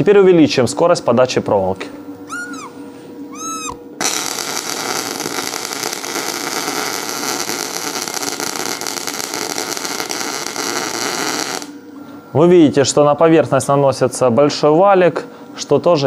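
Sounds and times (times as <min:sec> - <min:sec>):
welding arc crackling: 0:04.0 - 0:11.8.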